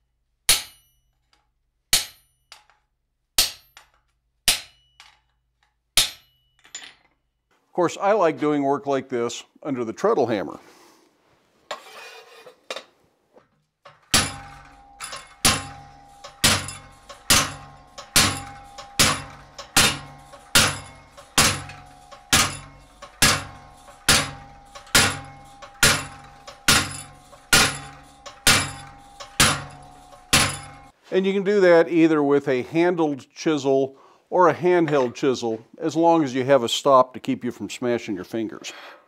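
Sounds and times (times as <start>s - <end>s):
hammer striking chisel on steel: 0.5s - 2.8s, 3.4s - 5.3s, 6.0s - 6.7s, 13.9s - 31.0s
ringing tone of struck steel: 14.1s - 31.0s.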